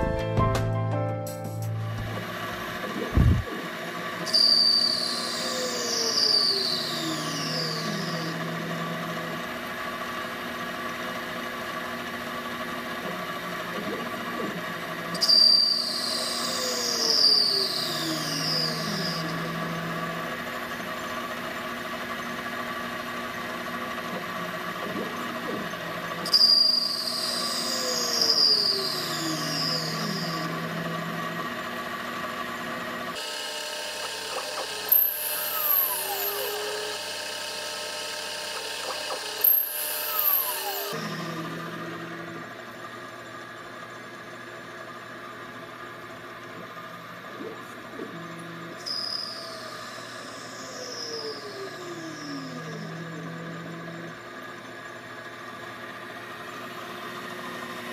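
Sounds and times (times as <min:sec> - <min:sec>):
cutting tool whine falling in pitch: 0:01.6 - 0:57.9
lathe spindle hum: 0:01.9 - 0:57.9.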